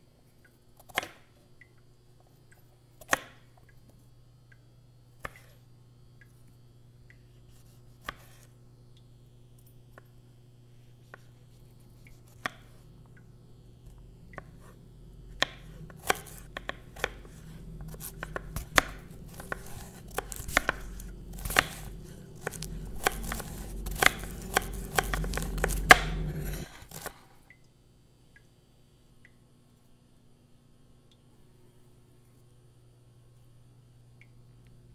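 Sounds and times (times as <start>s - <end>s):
low drone: 12.8s - 27.0s
knife chopping on wooden board: 14.4s - 27.2s.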